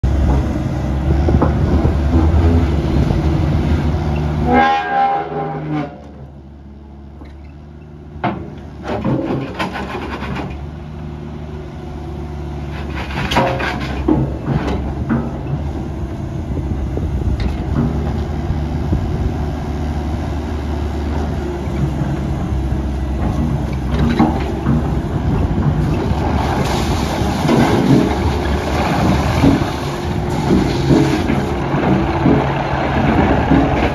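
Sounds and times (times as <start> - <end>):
excavator diesel engine running: 0.0 - 33.9
short horn-like tone: 4.4 - 6.1.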